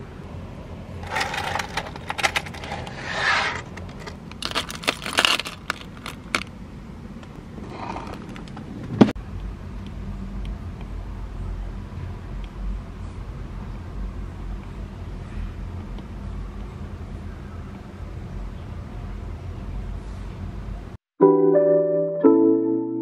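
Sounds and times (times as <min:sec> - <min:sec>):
keychains jangling and clicking: 0:01.0 - 0:02.7, 0:04.0 - 0:06.4.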